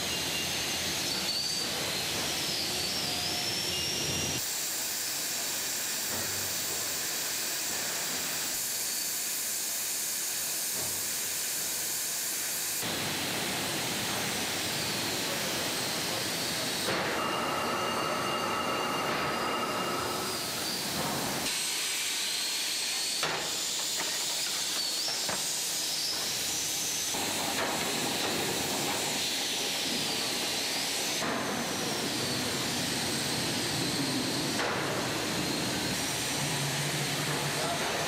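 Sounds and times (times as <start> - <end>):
faint high squeals: 0.0 - 4.4, 16.9 - 21.0
hissing machinery: 0.0 - 38.0.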